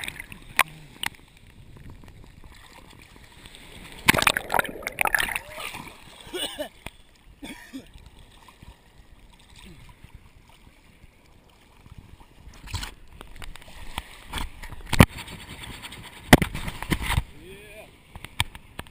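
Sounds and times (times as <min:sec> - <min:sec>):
water splashing against camera: 0:00.0 - 0:07.2, 0:11.7 - 0:17.4
sea water sloshing: 0:00.0 - 0:17.1.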